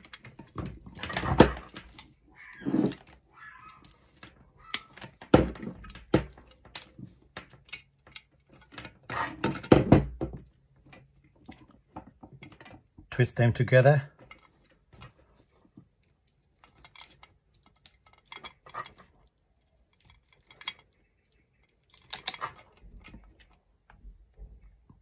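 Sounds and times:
hands twisting cable: 0.0s - 13.2s, 14.1s - 25.0s
plastic housing clicks and knocks: 3.7s - 13.0s.

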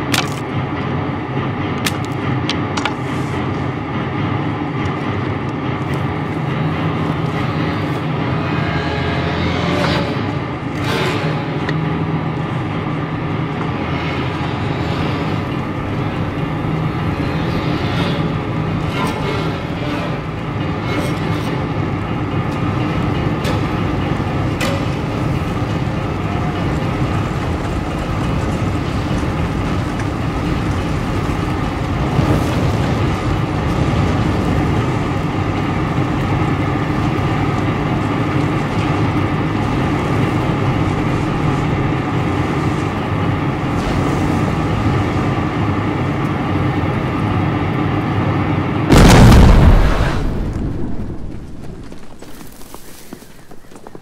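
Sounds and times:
dense fire rumble: 0.0s - 54.0s
loud explosion: 48.9s - 51.6s.

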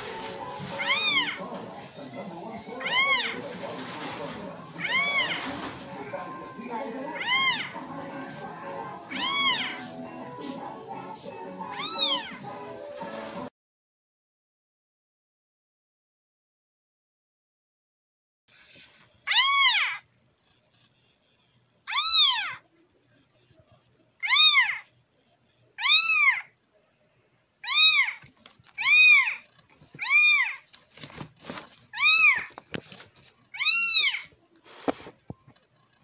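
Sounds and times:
kitten meows through phone speaker: 0.8s - 1.4s, 2.8s - 3.4s, 4.8s - 5.4s, 7.2s - 7.7s, 9.1s - 9.8s, 11.7s - 12.3s, 19.3s - 20.0s, 21.9s - 22.6s, 24.2s - 24.9s, 25.8s - 26.5s, 27.6s - 28.2s, 30.0s - 30.6s, 32.0s - 32.5s, 33.6s - 34.3s.

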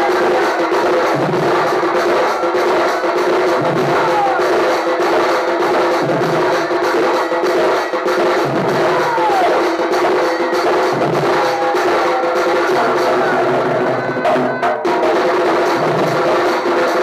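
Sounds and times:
fast barrel drum beats: 0.0s - 17.0s
stand-mounted drum: 0.0s - 17.0s.

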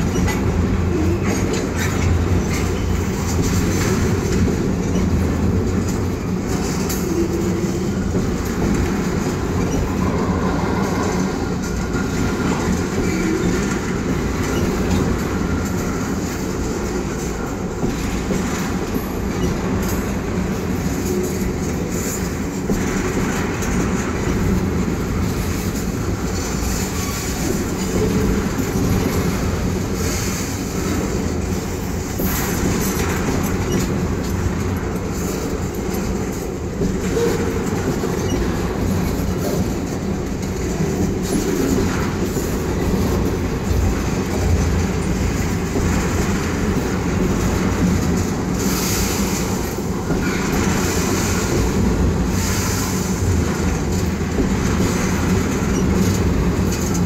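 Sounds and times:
freight train rumble: 0.0s - 57.0s
wheels clattering over rail joints: 0.0s - 57.0s.

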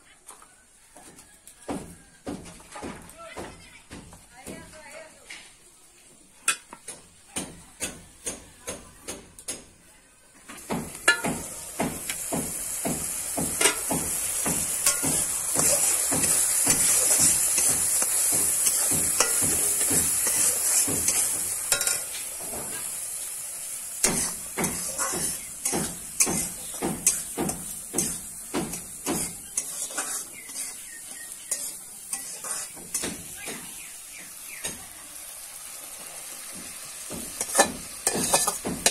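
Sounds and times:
food sizzling in hot oil: 10.6s - 38.9s
metal spatula scraping wok: 11.0s - 34.8s, 35.6s - 38.9s.

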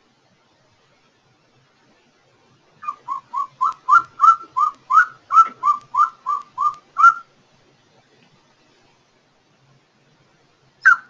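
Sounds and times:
eagle yelping calls: 2.8s - 7.3s.

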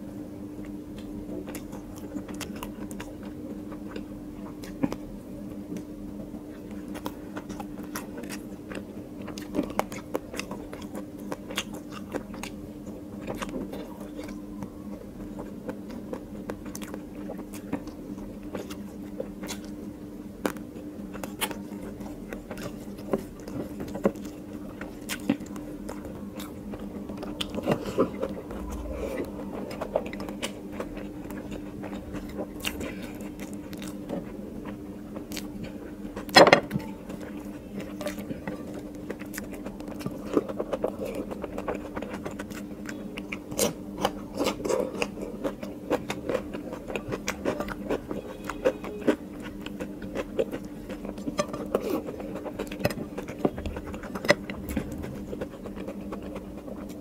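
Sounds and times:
mouth chewing: 0.6s - 5.0s, 6.5s - 36.4s, 37.0s - 57.0s
low hum: 24.0s - 38.6s.

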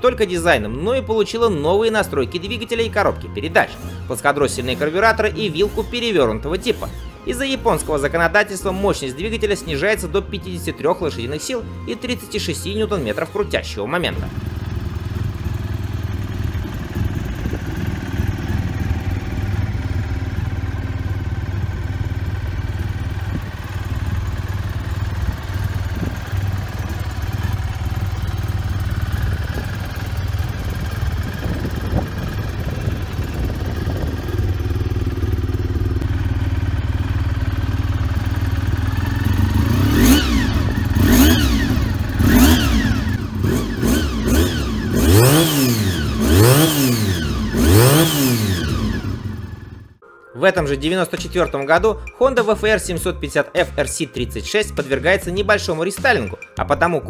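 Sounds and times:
motorcycle engine idling: 0.0s - 50.0s
engine throttle blips: 14.1s - 50.0s.

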